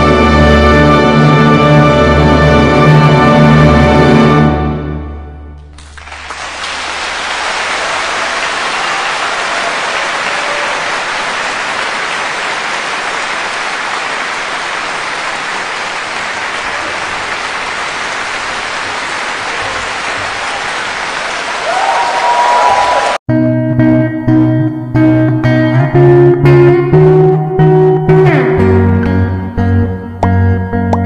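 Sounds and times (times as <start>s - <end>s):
audience applauding: 5.6s - 23.2s.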